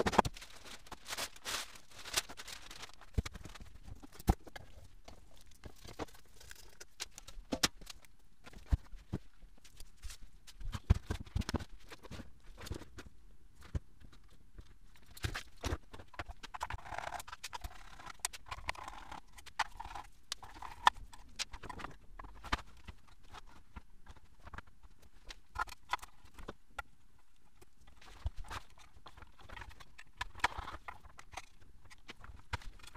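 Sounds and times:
rustling: 0.0s - 7.9s.

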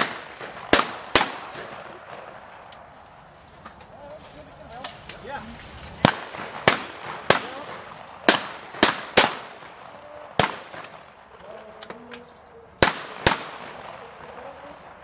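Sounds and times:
distant shotgun shots: 0.0s - 2.4s, 6.0s - 11.6s, 12.8s - 14.7s
shotgun shots: 0.0s - 2.4s, 6.0s - 11.3s, 12.8s - 14.6s.

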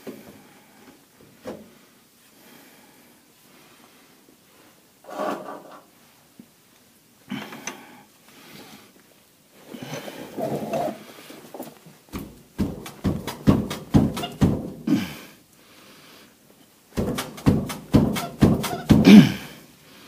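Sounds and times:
metal parts scraping and clunking: 5.0s - 5.9s.

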